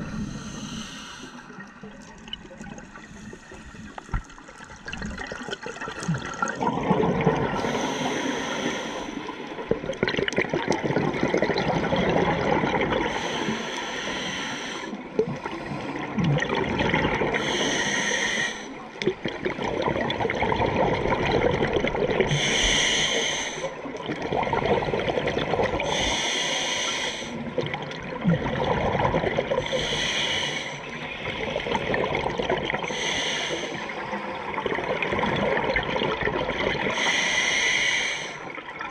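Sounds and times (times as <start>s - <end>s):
regulator hissing inhalations: 0.0s - 1.5s, 7.6s - 9.3s, 13.1s - 15.0s, 17.4s - 18.8s, 22.3s - 23.7s, 25.9s - 27.4s, 29.6s - 31.0s, 32.9s - 34.0s, 36.9s - 38.5s
exhaled air bubbling: 0.0s - 38.9s.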